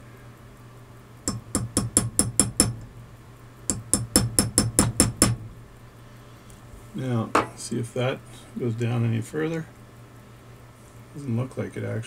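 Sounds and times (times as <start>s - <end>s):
small hammer tapping steel: 1.3s - 2.9s, 3.7s - 5.5s.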